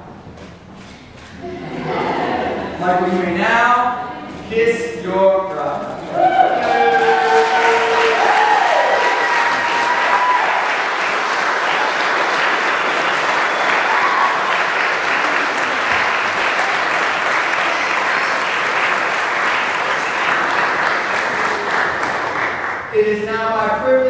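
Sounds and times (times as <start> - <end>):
congregation applauding: 6.0 - 23.0.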